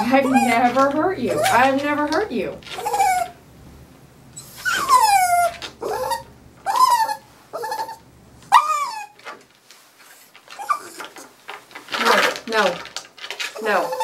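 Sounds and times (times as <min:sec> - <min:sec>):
dog crying out: 0:00.0 - 0:01.8, 0:02.7 - 0:03.4, 0:04.4 - 0:09.3, 0:10.5 - 0:11.3, 0:13.5 - 0:14.0.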